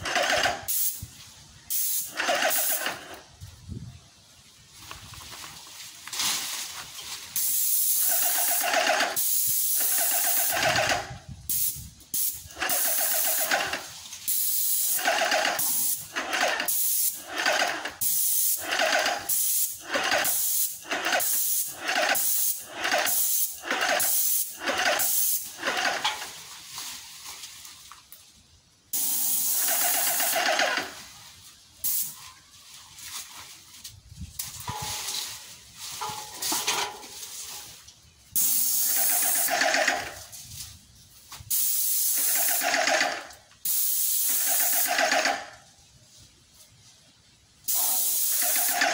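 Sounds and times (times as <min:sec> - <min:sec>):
paint sprayer hissing in bursts: 0:00.0 - 0:03.3, 0:07.3 - 0:26.3, 0:28.9 - 0:31.2, 0:31.8 - 0:32.2, 0:38.3 - 0:40.3, 0:41.4 - 0:45.6, 0:47.6 - 0:48.9.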